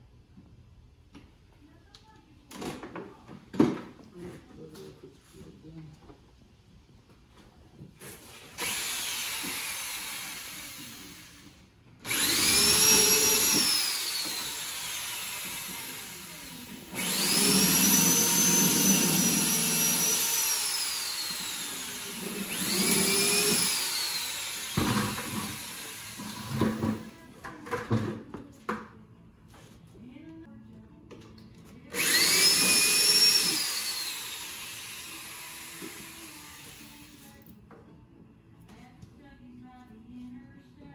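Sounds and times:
electric drill boring into wood: 0:08.4 - 0:27.1, 0:31.9 - 0:37.3.

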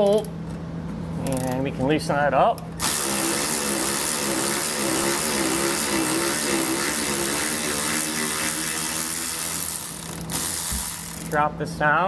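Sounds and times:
electric ratchet motor whine: 0:02.8 - 0:11.4.

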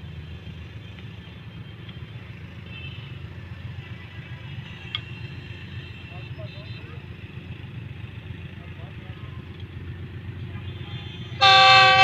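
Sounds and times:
diesel locomotive engine idling: 0:00.0 - 0:12.0.

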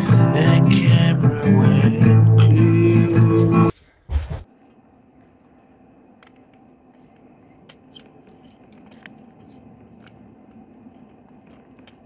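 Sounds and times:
low background hum: 0:00.0 - 0:12.0
screwdriver clicks and scrapes: 0:07.7 - 0:12.0.

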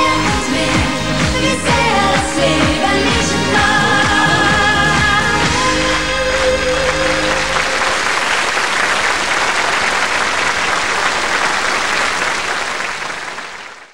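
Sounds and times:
audience applauding: 0:03.0 - 0:13.9.

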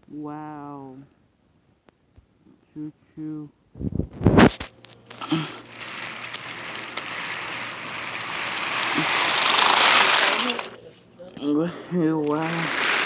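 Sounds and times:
loud clatter: 0:04.4 - 0:11.1, 0:12.1 - 0:13.0
toy trains rolling on wooden track: 0:04.5 - 0:13.0.

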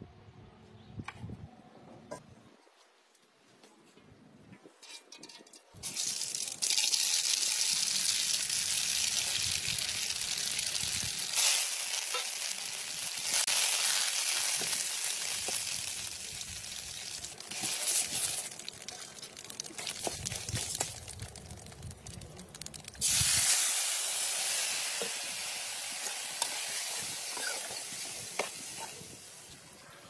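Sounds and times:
hot oil sizzling: 0:05.8 - 0:29.8.

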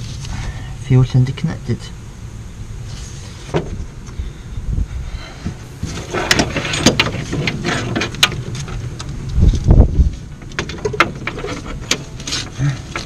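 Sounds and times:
wires rustling: 0:05.4 - 0:13.0.

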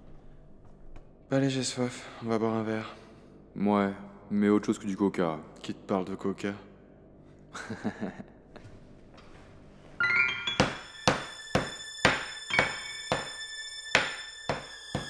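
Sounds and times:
music with bell-like notes: 0:10.0 - 0:15.0
rolling pin pounding on wooden board: 0:10.6 - 0:13.4, 0:14.0 - 0:15.0.

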